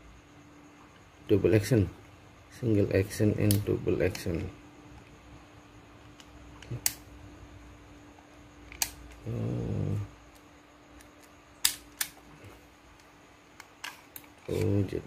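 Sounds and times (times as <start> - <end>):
pistol action clicks: 11.0 - 12.2.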